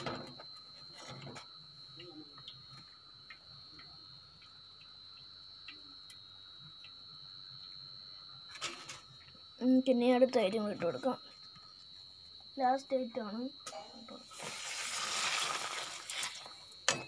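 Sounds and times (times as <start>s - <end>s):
faint high whine: 0.0s - 17.0s
pappadam crackling in hot oil: 14.2s - 17.0s.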